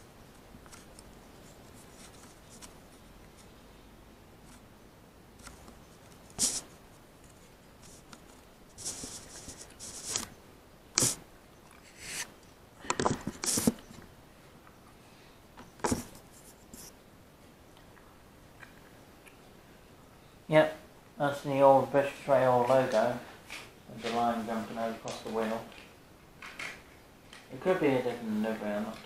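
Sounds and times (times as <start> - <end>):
handling rubbing scrapes: 5.4 - 10.4, 11.0 - 12.4, 13.3 - 13.9.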